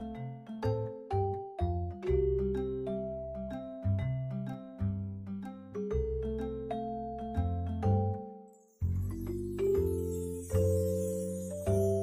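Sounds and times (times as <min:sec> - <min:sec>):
light tune of ringing notes: 0:05.9 - 0:12.0.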